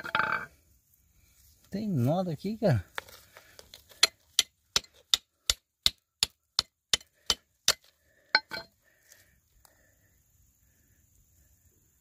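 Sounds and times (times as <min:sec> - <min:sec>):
hammer striking quartz: 0:04.0 - 0:08.7.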